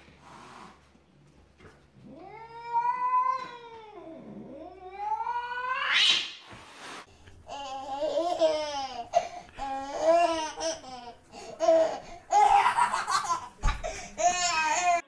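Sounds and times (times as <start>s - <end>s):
toddler laughing: 7.5s - 15.0s.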